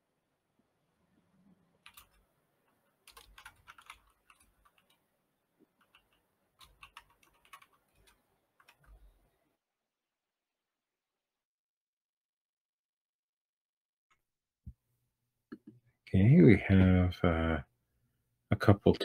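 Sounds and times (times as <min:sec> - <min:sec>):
faint keyboard typing: 0:01.8 - 0:09.3.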